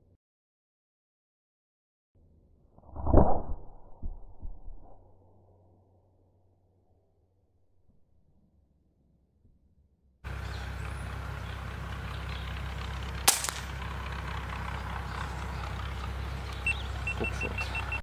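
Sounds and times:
air rifle shot: 0:13.3 - 0:13.7.

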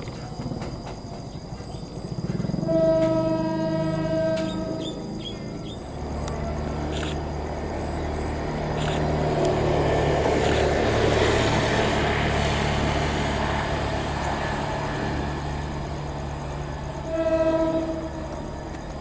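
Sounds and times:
diesel locomotive engine humming: 0:00.0 - 0:19.0
train horn: 0:02.4 - 0:05.3, 0:16.6 - 0:18.9.

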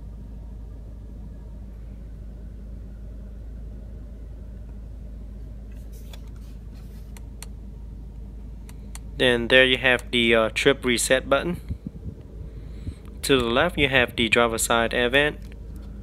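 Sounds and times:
car engine idling: 0:00.0 - 0:16.0
light clicks and rustles: 0:05.7 - 0:07.5.

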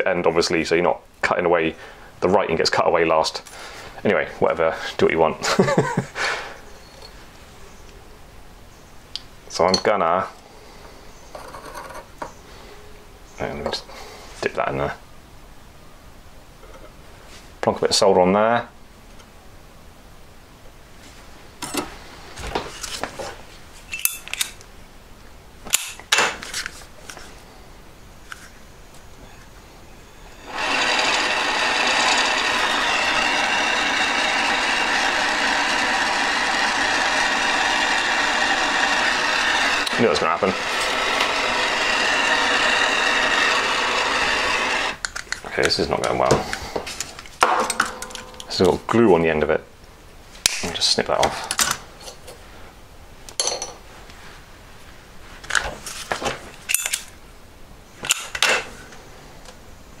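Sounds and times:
metal tools clinking on bench: 0:09.7 - 0:09.9, 0:47.5 - 0:48.7, 0:53.4 - 0:53.8, 0:56.7 - 0:57.1.

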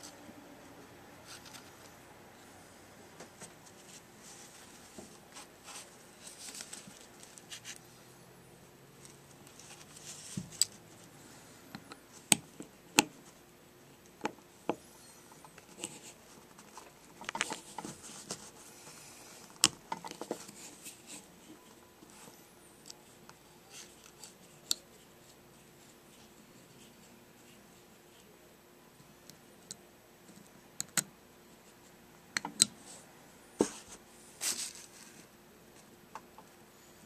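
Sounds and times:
soft scratching and rustling: 0:03.2 - 0:07.9, 0:09.0 - 0:11.5, 0:14.9 - 0:28.4, 0:33.6 - 0:35.9.

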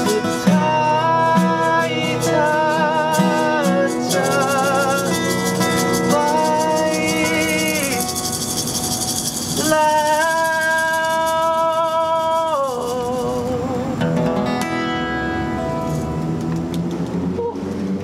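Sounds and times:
shaker rattling: 0:00.0 - 0:13.9
acoustic guitars playing ballad: 0:00.0 - 0:17.9.

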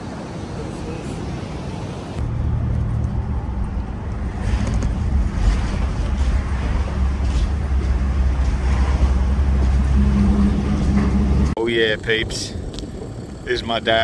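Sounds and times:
car engine and road rumble: 0:02.2 - 0:14.0.

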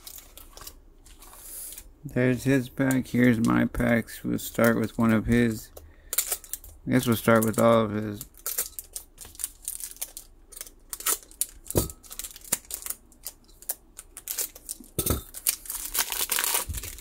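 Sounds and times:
foil wrapper crinkling: 0:00.0 - 0:01.9, 0:04.5 - 0:17.0
foil tearing: 0:15.4 - 0:17.0.

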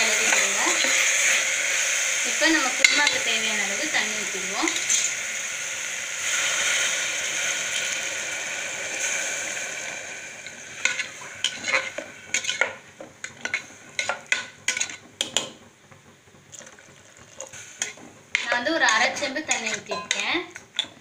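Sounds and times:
water sizzling in hot oil: 0:00.0 - 0:21.0
spoon scraping metal pot: 0:10.8 - 0:15.4, 0:17.8 - 0:21.0.

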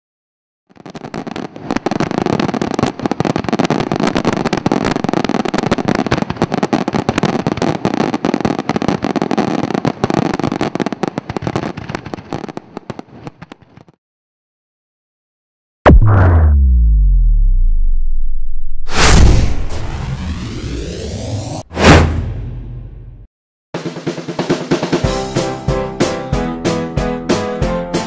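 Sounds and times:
fireworks bangs and crackles: 0:00.7 - 0:14.0.

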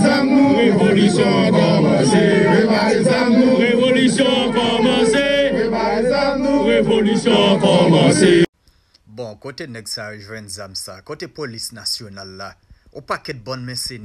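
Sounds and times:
crowd of men chanting: 0:00.0 - 0:08.5.

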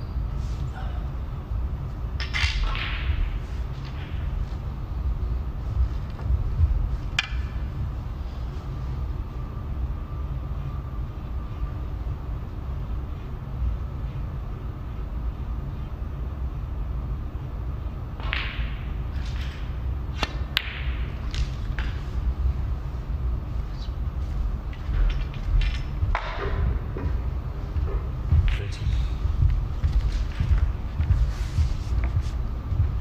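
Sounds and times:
low room hum: 0:00.0 - 0:33.0
snooker balls clicking: 0:07.1 - 0:07.7, 0:18.2 - 0:22.1, 0:24.7 - 0:28.9
cue striking ball: 0:18.2 - 0:19.0, 0:20.2 - 0:22.0.

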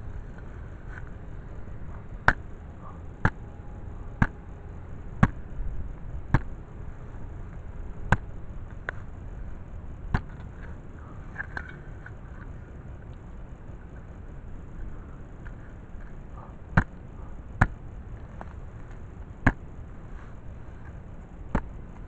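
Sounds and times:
hand digger chopping into turf: 0:21.5 - 0:21.7.

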